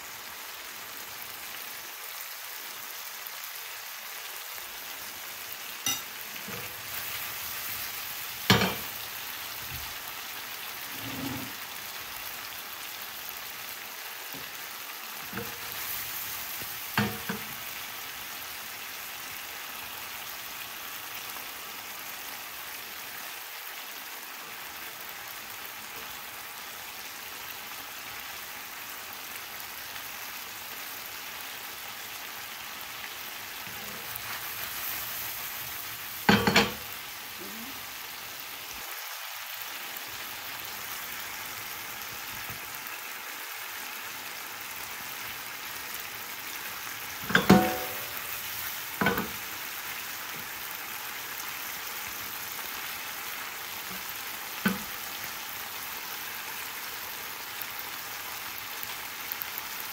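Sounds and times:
chicken sizzling in frying pan: 0.0 - 59.9
utensil knocking against pan: 47.3 - 48.2.

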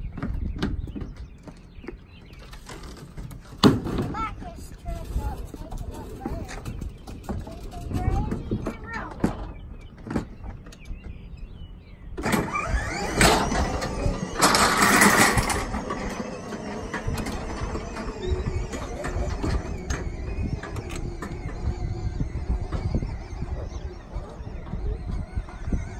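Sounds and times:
rattles and clicks: 2.2 - 11.0, 12.2 - 25.9
toy truck electric motors whirring: 4.2 - 9.0, 12.2 - 25.9.

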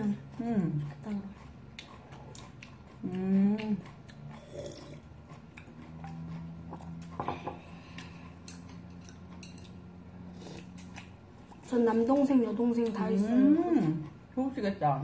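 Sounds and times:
chewing noises: 0.0 - 14.8
chopsticks clicking against bowls: 0.8 - 4.5, 5.3 - 10.0, 10.6 - 13.1.

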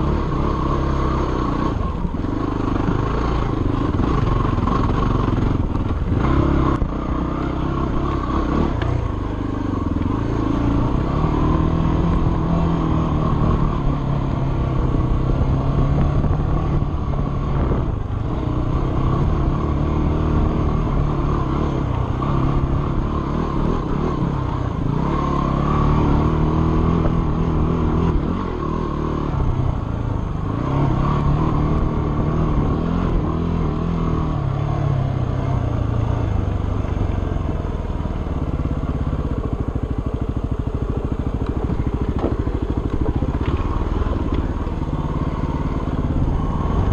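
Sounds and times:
dirt bike engine revving: 0.0 - 29.7.

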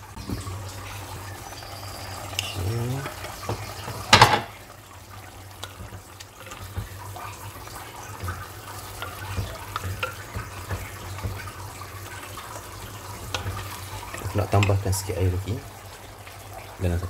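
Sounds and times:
faint pops of cooking: 5.5 - 12.6.

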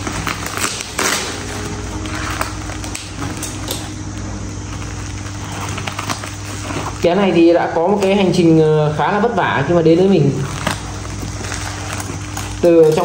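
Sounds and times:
packaging rustling and crinkling: 0.0 - 13.0
steady low hum: 0.0 - 13.0.

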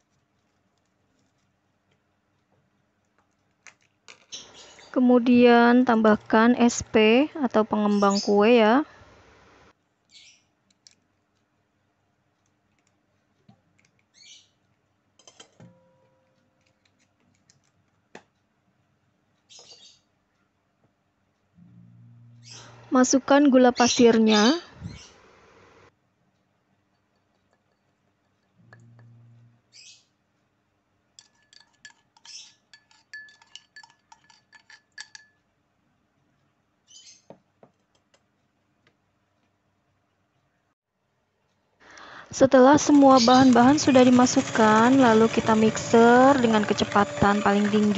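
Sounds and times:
spoon knocking on metal bowl: 28.6 - 29.4
glass and metal clinks: 31.2 - 35.4
sugar hissing into a metal bowl: 42.0 - 47.9.

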